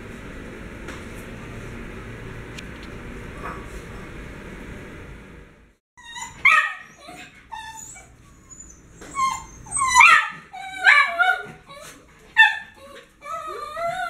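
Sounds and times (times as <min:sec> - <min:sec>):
dog whining and yipping: 0:06.0 - 0:14.0.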